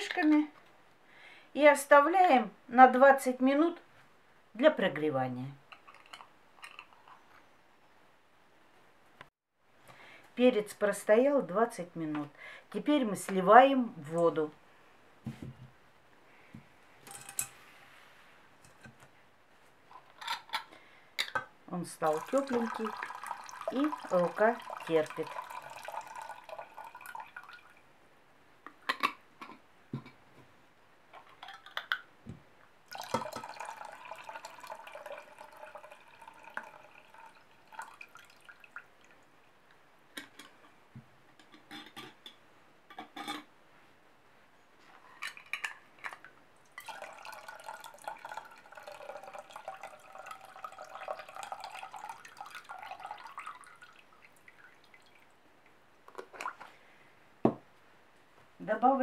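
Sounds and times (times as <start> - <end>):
water pouring into a steel saucepan: 22.0 - 27.8, 32.9 - 38.8, 46.8 - 55.3.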